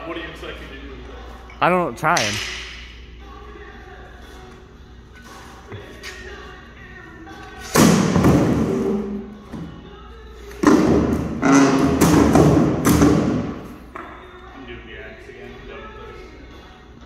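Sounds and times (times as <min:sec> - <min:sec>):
sledgehammer hitting a bathtub: 0:10.6 - 0:13.5.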